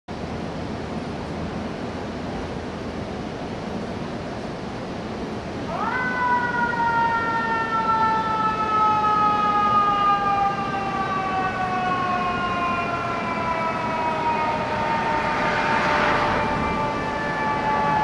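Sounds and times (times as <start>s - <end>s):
mechanical siren wail: 5.7s - 18.0s.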